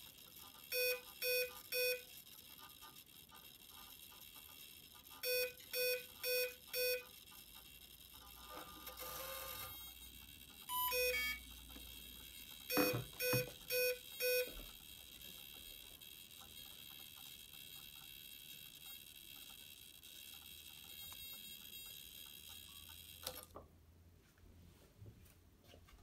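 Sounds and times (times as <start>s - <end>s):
short electronic beeps: 0.7s - 2.0s, 5.2s - 7.1s, 10.7s - 11.5s, 12.7s - 14.6s
two-tone beep: 10.7s - 11.5s, 12.7s - 14.5s.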